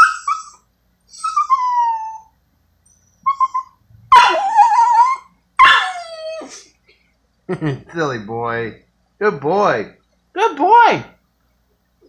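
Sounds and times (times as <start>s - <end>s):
dog whimpering: 0.0s - 2.3s, 2.9s - 6.7s.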